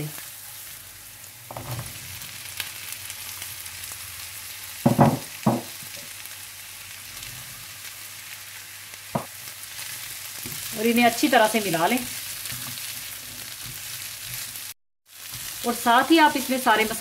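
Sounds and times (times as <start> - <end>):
oil sizzling in a pan: 0.0 - 17.0
knocks in a pan: 4.8 - 5.8.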